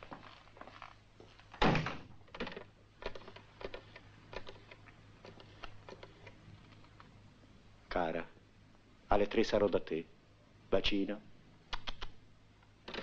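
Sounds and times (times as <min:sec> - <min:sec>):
door shutting with heavy thud: 0:01.6 - 0:02.1
desk telephone being handled: 0:02.3 - 0:07.0.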